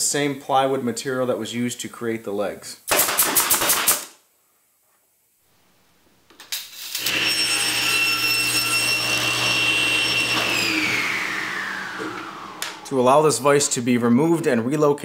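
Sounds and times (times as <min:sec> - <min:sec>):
saw blade winding down: 0:06.6 - 0:13.8
table saw running: 0:06.8 - 0:13.8.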